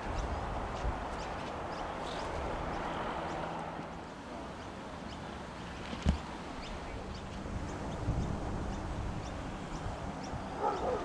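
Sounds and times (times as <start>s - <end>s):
wind buffeting microphone: 0.0s - 3.5s, 5.8s - 11.0s.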